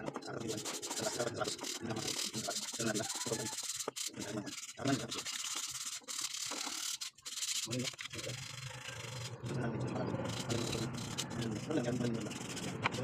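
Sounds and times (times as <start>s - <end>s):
sandpaper rubbing on wood: 0.0s - 13.0s.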